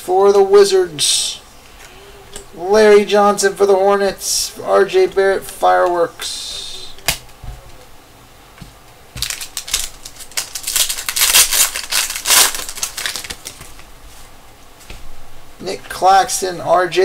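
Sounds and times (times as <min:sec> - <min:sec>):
foil wrapper tearing and crinkling: 0:09.2 - 0:13.8.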